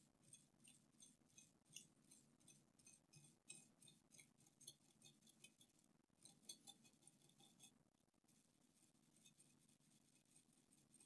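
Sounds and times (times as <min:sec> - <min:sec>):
faint room hum: 0:00.0 - 0:11.0
soft ticks: 0:00.3 - 0:07.8.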